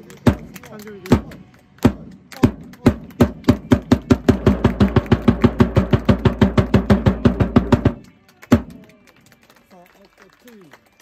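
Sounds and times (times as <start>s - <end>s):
drum beaten in fast rhythm: 0.0s - 8.9s.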